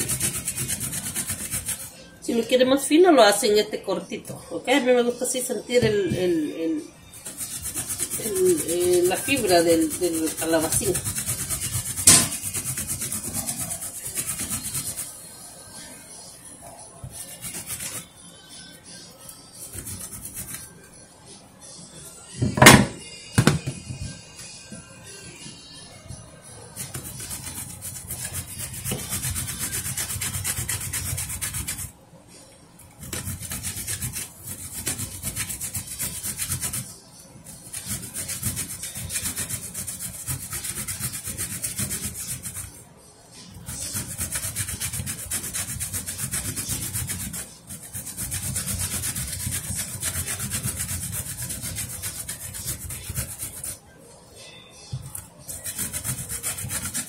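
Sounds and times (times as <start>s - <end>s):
zucchini rasping on a metal grater: 0.0s - 1.9s, 7.2s - 15.1s, 17.1s - 18.1s, 26.8s - 31.9s, 33.0s - 36.9s, 37.6s - 42.7s, 43.6s - 53.8s, 55.5s - 57.0s.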